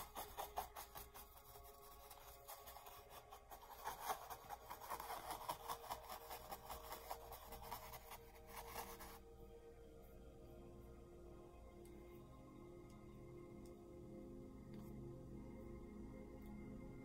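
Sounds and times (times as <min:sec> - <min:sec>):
paintbrush scrubbing on canvas: 0:00.0 - 0:09.2.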